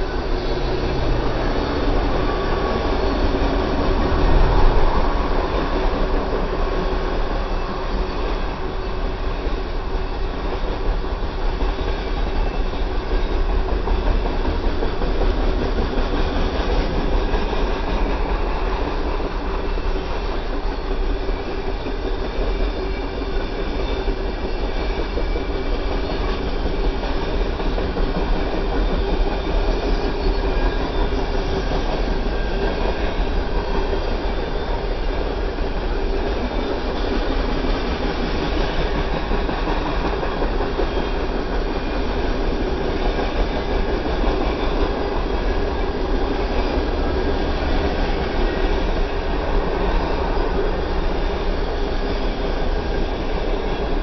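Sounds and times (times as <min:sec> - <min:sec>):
freight train rolling past: 0:00.0 - 0:54.0.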